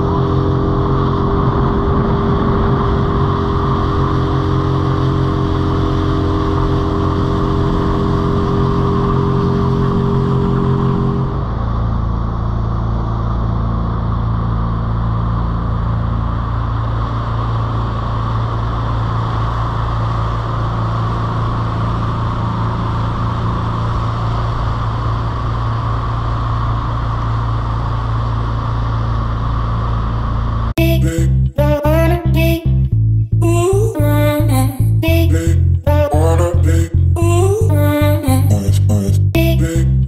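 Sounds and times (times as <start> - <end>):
outboard motor running: 0.0 - 30.7.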